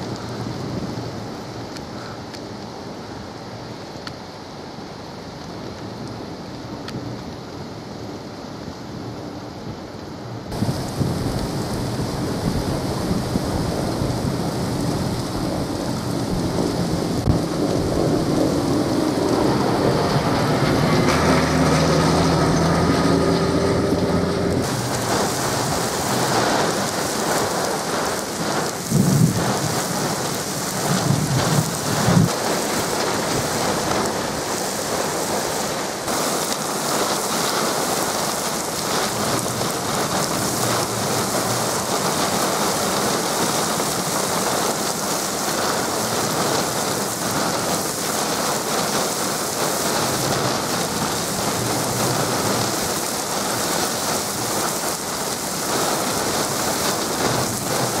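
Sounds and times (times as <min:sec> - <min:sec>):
heavy rain hissing: 0:00.0 - 0:58.0
gusty wind buffeting microphone: 0:10.5 - 0:58.0
tractor engine passing: 0:17.6 - 0:27.8.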